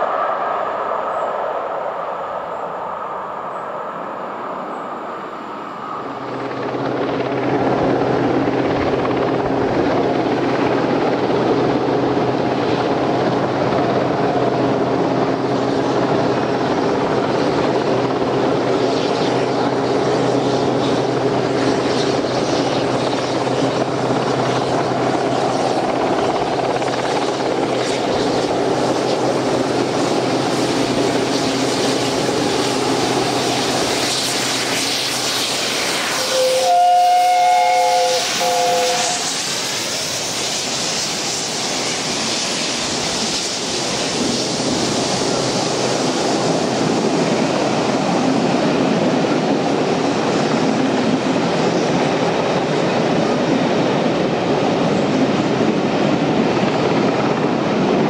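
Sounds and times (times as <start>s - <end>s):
train drone: 0.0s - 58.0s
steam locomotive chime whistle: 36.1s - 39.5s.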